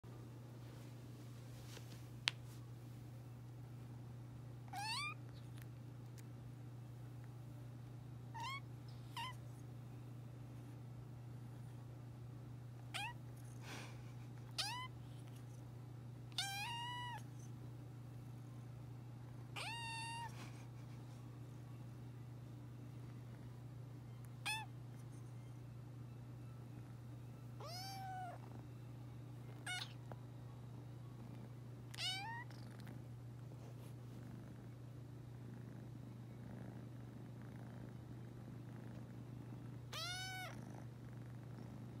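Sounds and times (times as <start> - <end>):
kitten meowing: 4.8 - 5.2, 8.4 - 9.4, 14.6 - 14.9, 16.3 - 17.2, 19.6 - 20.3, 24.4 - 24.7, 27.6 - 28.4, 29.6 - 30.0, 31.9 - 32.5, 39.9 - 40.6
kitten purring: 31.0 - 42.0.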